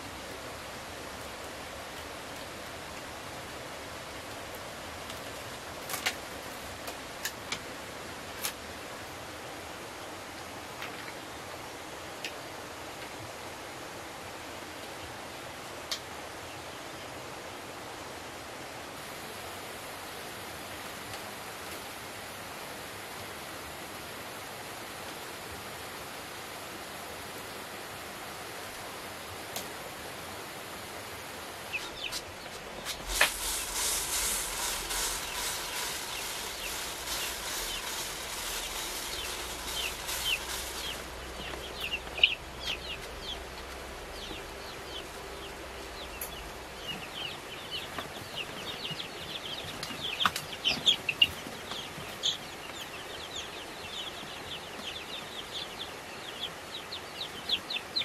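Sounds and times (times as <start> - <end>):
background hiss: 0.0 - 58.0
chickens clucking and calling: 31.5 - 58.0
chicken wing-flapping: 31.9 - 42.3.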